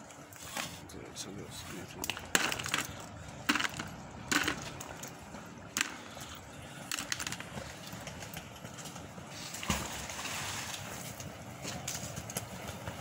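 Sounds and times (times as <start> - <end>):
metal objects knocking and clattering: 2.1 - 5.1, 6.9 - 7.6.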